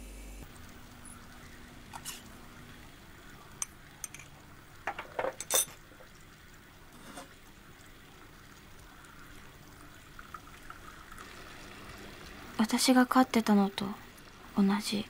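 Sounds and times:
small liquid sounds: 0.4s - 15.0s
tableware clinking: 3.6s - 5.8s, 7.0s - 7.3s.

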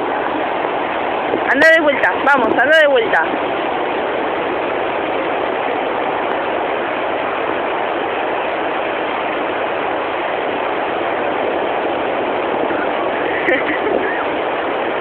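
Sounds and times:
waves washing on beach: 0.0s - 15.0s.

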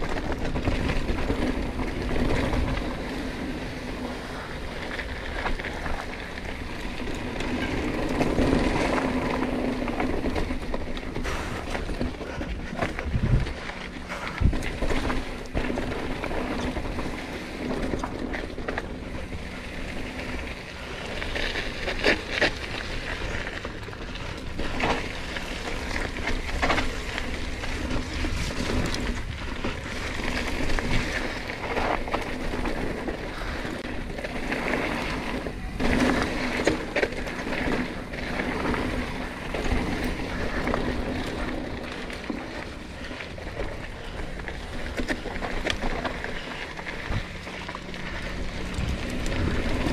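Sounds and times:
bike knocking and rattling: 0.0s - 49.9s
tyres rolling over dirt: 0.0s - 49.9s
wind rushing over microphone: 12.5s - 15.4s.

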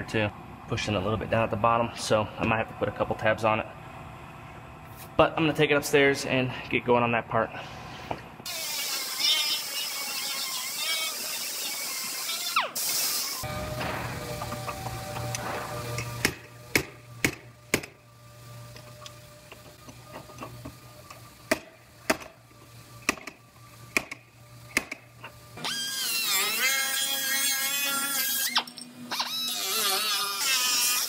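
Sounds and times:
whine dipping and rising: 13.5s - 18.1s.

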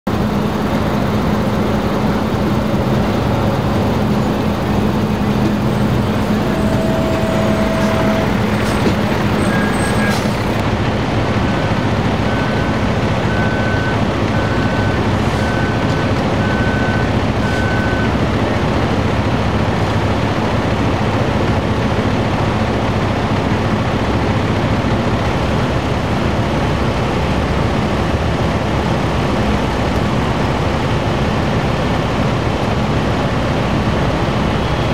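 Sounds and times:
heavy vehicle engines running: 0.1s - 34.9s
short beeps: 5.4s - 10.6s.

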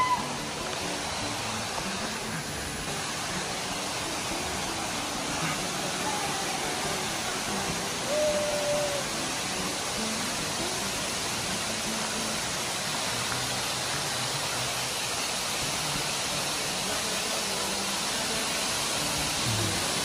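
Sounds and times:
faint background music: 0.0s - 20.0s
waterfall crashing: 0.0s - 20.0s.

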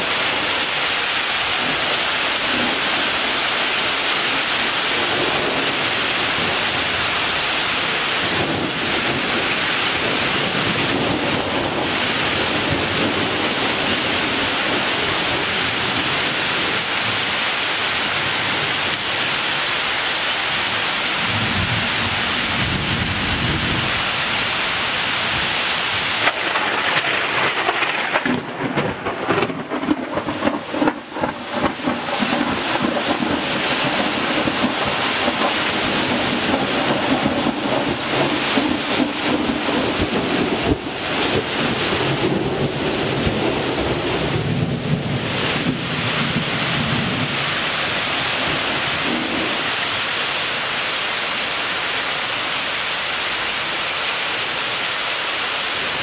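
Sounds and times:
heavy rain hissing: 0.0s - 56.0s
thunder rolling: 8.3s - 15.6s, 26.2s - 47.5s.

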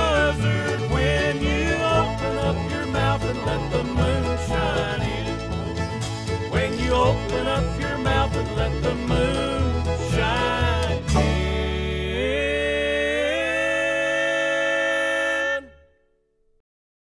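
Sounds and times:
jug band playing: 0.0s - 14.3s.

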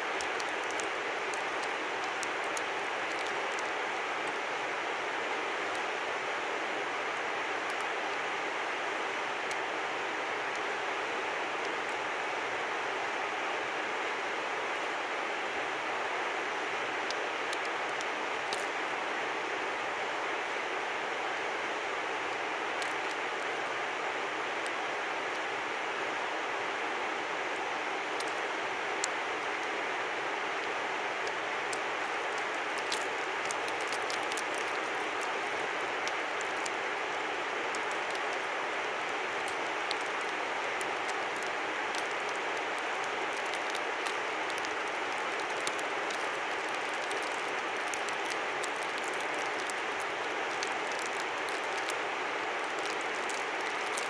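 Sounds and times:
river rushing: 15.5s - 54.0s
light ticks: 17.1s - 18.7s, 31.2s - 36.8s, 37.7s - 38.5s, 39.4s - 52.0s.

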